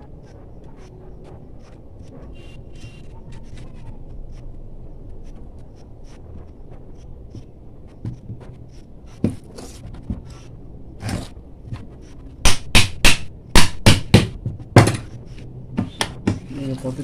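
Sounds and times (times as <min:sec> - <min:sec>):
hammer tapping on motor: 0:12.4 - 0:15.2.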